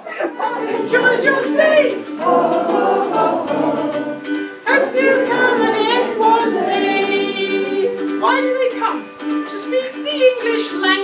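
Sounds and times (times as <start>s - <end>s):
person singing: 0.0s - 11.0s
strummed ukulele: 0.0s - 11.0s.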